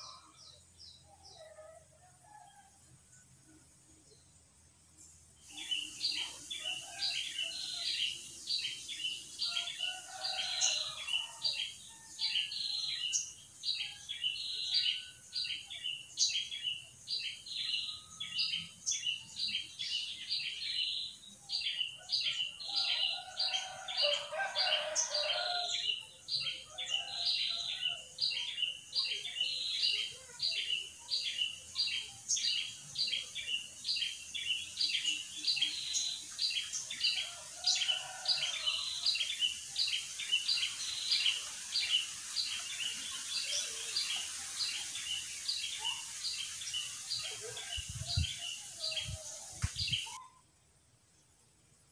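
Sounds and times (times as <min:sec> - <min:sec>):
steady high hiss: 0:38.2 - 0:50.2.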